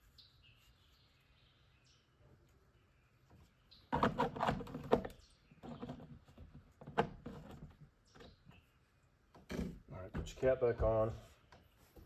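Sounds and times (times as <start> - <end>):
hard plastic knocking and scraping: 3.9 - 8.6.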